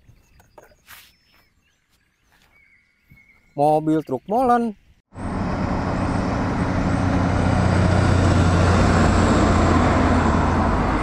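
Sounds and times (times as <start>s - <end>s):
road traffic noise: 5.1s - 11.0s
truck diesel engine passing: 5.1s - 11.0s.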